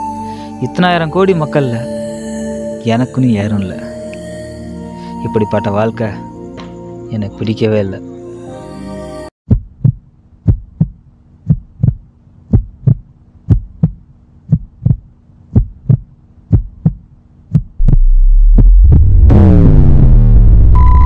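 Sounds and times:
heartbeat thumps: 0:09.5 - 0:20.1
loud low drone: 0:17.8 - 0:21.0.

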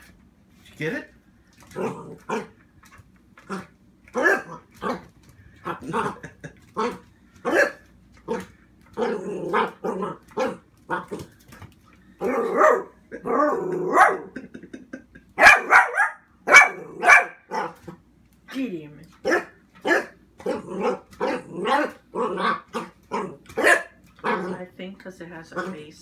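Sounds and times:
dog barking: 0:04.2 - 0:05.0, 0:06.8 - 0:08.4, 0:12.2 - 0:13.0, 0:13.9 - 0:14.3, 0:15.4 - 0:17.8, 0:19.2 - 0:24.4.

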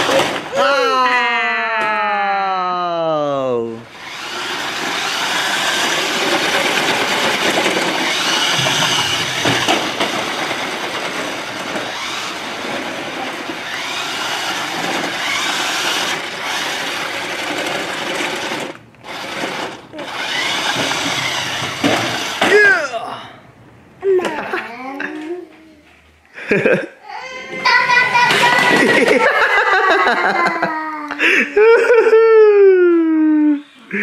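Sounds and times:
toy truck electric motor whining: 0:03.9 - 0:22.7, 0:27.6 - 0:29.2.

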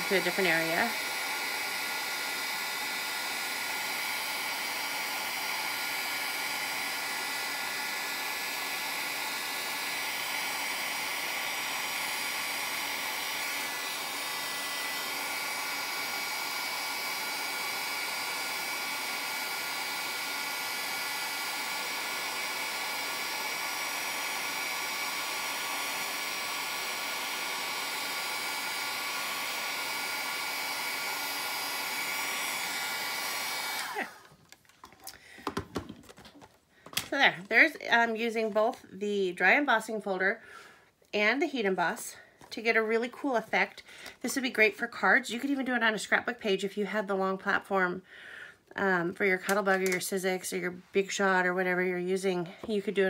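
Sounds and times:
heat gun blowing hot air: 0:00.0 - 0:36.2, 0:49.2 - 0:53.0.

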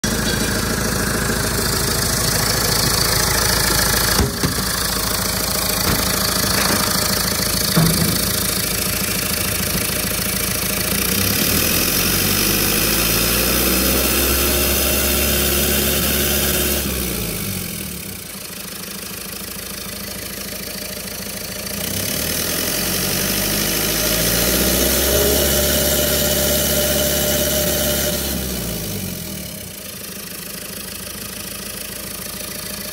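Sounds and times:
diesel engine revving: 0:00.0 - 0:18.3, 0:21.7 - 0:29.8
sharp knocks: 0:04.1 - 0:10.1.

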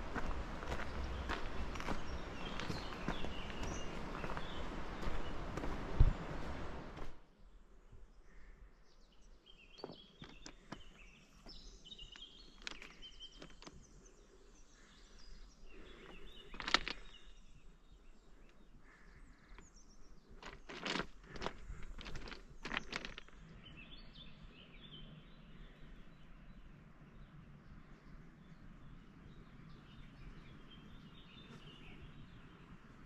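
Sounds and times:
footsteps: 0:00.0 - 0:07.2, 0:20.4 - 0:23.4
small birds chirping: 0:00.0 - 0:33.0.

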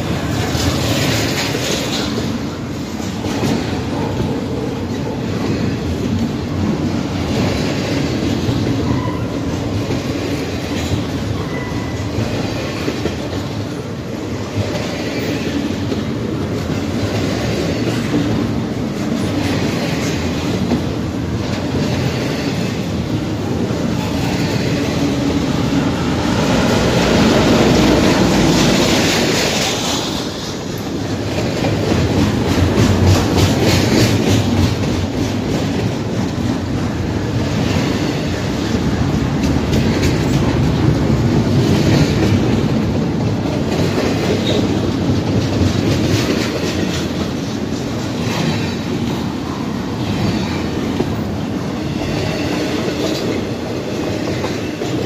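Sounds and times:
train wheels rumbling on rail: 0:00.0 - 0:55.0
wheels clacking over rail joints: 0:00.0 - 0:55.0.

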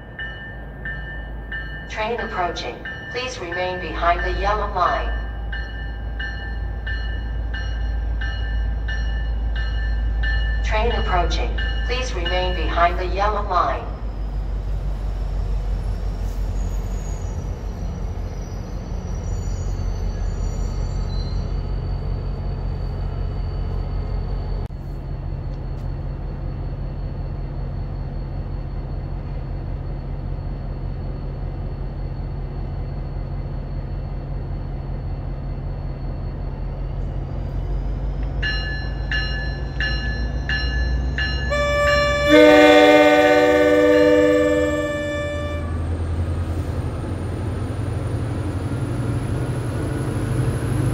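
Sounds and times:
train bell ringing: 0:00.0 - 0:14.5, 0:26.6 - 0:48.2
train rumble: 0:00.0 - 0:50.9.

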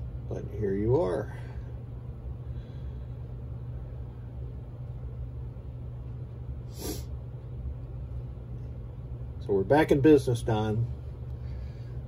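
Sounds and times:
low electrical hum: 0:00.0 - 0:12.0
person sniffing: 0:06.7 - 0:07.2.

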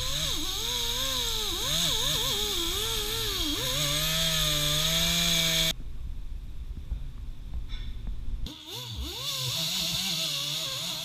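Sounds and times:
pneumatic wire wheel scrubbing metal: 0:00.0 - 0:05.7, 0:08.5 - 0:11.0.

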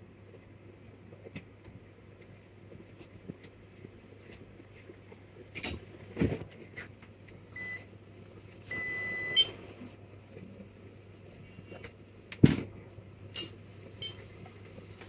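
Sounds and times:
multimeter beeps: 0:07.6 - 0:07.9, 0:08.7 - 0:09.6, 0:14.0 - 0:14.2.

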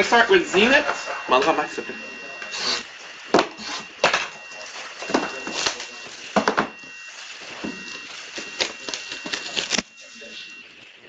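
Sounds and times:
shrink wrap crinkling and ripping: 0:07.0 - 0:09.9.

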